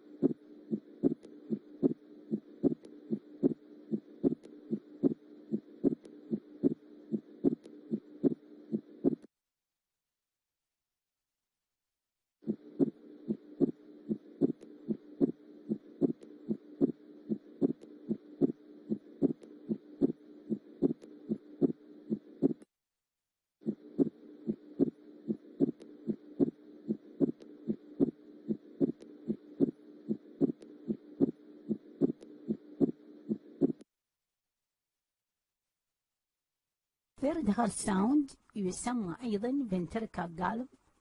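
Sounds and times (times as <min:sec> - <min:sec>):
heartbeat lub-dub: 0:00.0 - 0:09.3, 0:12.4 - 0:22.6, 0:23.6 - 0:33.8
steady hum: 0:00.0 - 0:09.3, 0:12.4 - 0:22.6, 0:23.6 - 0:33.8.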